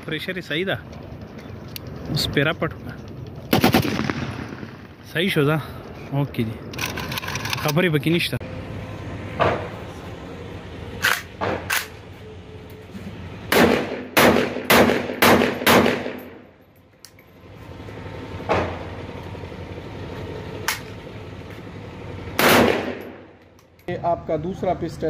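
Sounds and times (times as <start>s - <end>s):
rifle shots: 3.5s - 5.0s, 13.5s - 16.4s, 22.4s - 23.2s.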